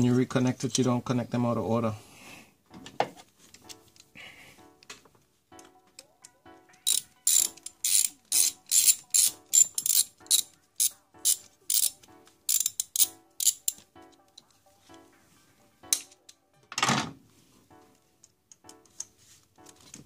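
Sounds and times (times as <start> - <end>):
hand ratchet clicking: 6.8 - 13.8.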